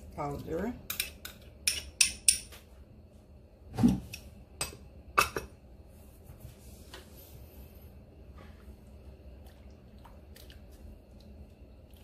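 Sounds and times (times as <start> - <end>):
metal spoon clinking on cookware: 0.9 - 2.5.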